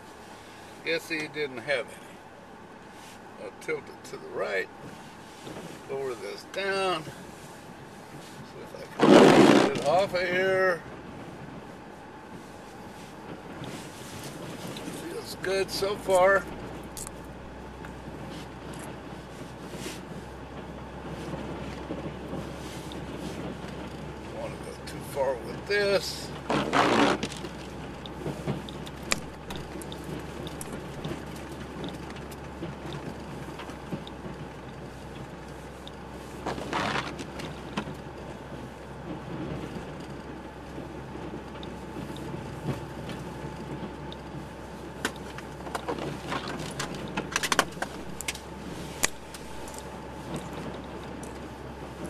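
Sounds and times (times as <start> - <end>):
truck engine drone: 0.0 - 52.0
noisy bursts: 8.6 - 10.6
clicks and rattles: 45.0 - 51.4.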